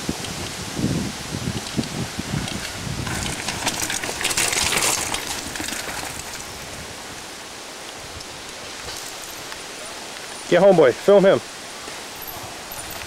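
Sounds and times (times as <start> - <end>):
tyres rolling over loose dirt: 1.4 - 7.4, 8.5 - 11.2
bike tyres landing on dirt: 1.6 - 6.9.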